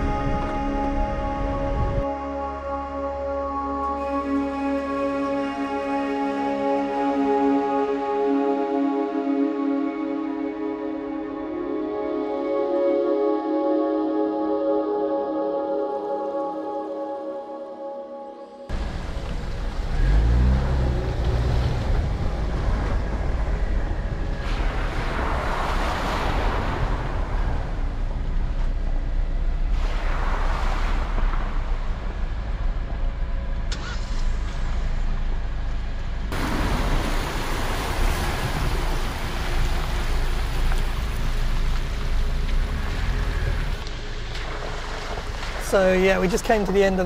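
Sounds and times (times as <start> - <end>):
engine revving: 18.7 - 45.6
engine and tyre rumble: 18.7 - 47.0
splashing through mud: 36.4 - 47.0.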